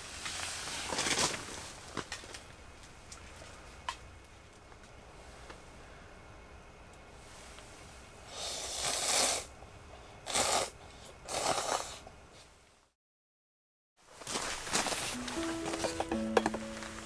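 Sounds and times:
person slurping hot food: 0:08.3 - 0:09.5, 0:10.2 - 0:12.0.

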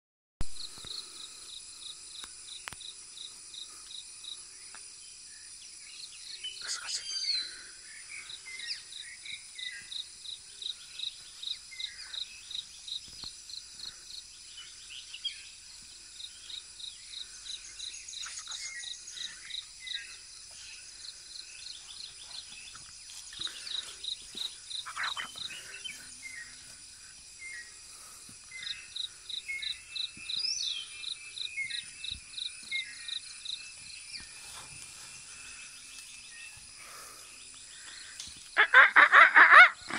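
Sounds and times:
high insect drone: 0:00.6 - 0:39.9
short bird calls: 0:24.7 - 0:26.6.

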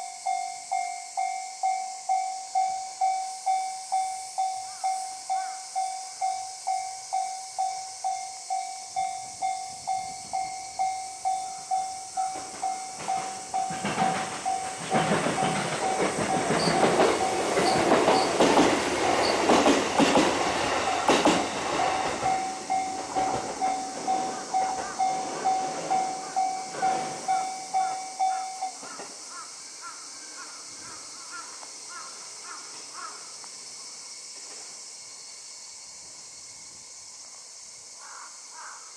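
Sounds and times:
crossing warning bell ringing: 0:00.0 - 0:29.2
train rumble and wheel clacks: 0:02.0 - 0:29.6.

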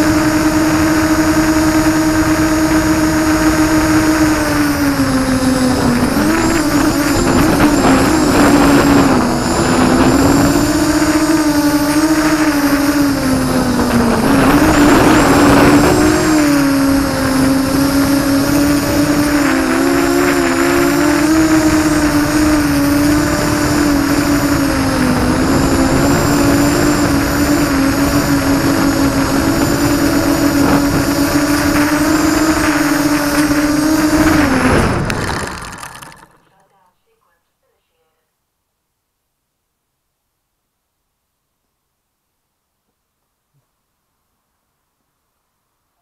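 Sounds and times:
drone motors whining: 0:00.0 - 0:36.7.

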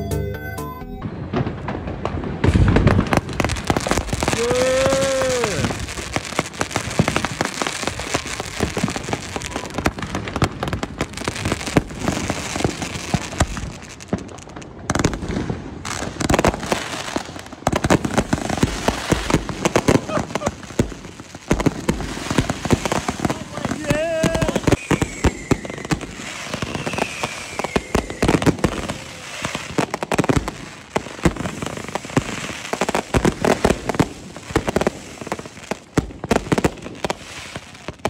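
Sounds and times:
heavy firework boom: 0:01.0 - 0:07.4
fireworks crackling and popping: 0:01.0 - 0:38.0
rising and falling whoop: 0:04.2 - 0:05.9, 0:26.7 - 0:29.7.

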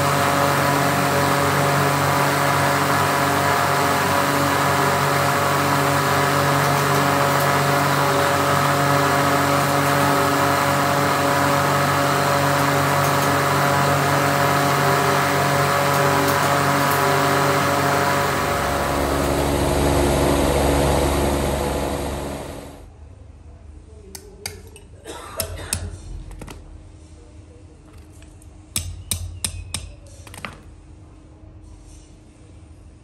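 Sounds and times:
polishing wheel motor humming: 0:00.0 - 0:22.9.

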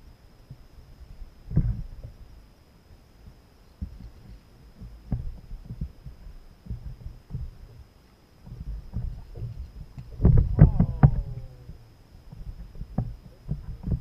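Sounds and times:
thuds against kayak hull: 0:10.1 - 0:11.8.

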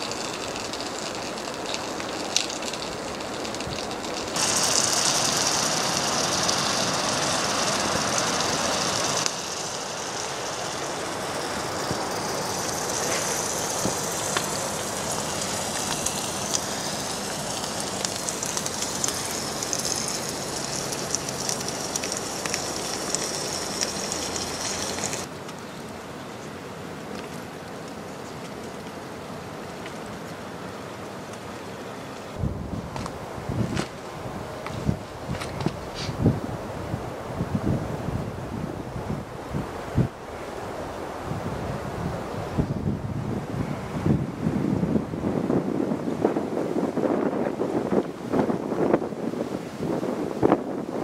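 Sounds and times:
food sizzling in a pan: 0:00.0 - 0:25.3.

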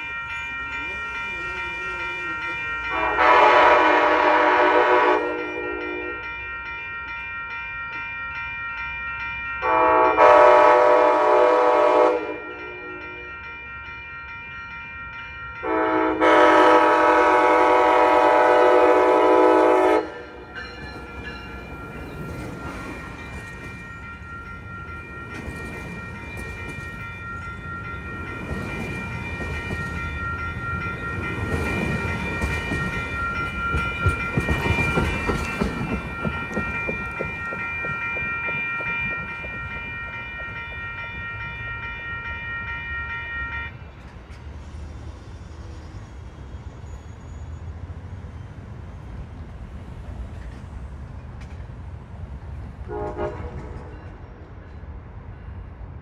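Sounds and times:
crossing signal bell ringing: 0:00.0 - 0:48.7
train horn blast: 0:02.9 - 0:06.2, 0:09.6 - 0:13.3, 0:15.6 - 0:20.5, 0:52.8 - 0:53.9
train wheels clattering on rails: 0:17.3 - 0:41.7, 0:44.0 - 0:55.4.

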